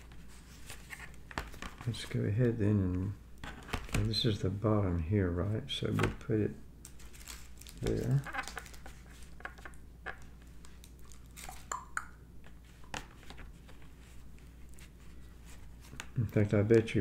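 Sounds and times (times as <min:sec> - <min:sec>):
air conditioner hum: 0:00.0 - 0:17.0
plastic crinkles: 0:06.8 - 0:11.7.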